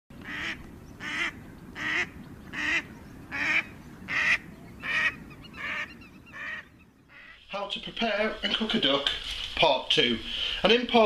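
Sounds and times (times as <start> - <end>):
waterfowl honking calls: 0.2 - 8.7.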